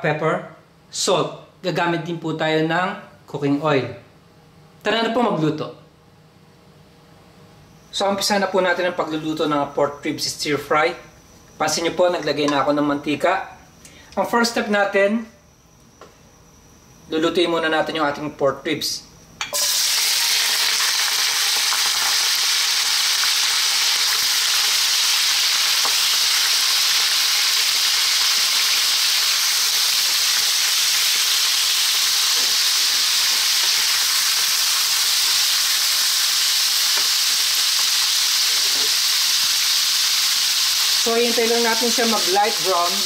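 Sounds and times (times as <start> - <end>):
meat sizzling in oil: 19.5 - 43.0.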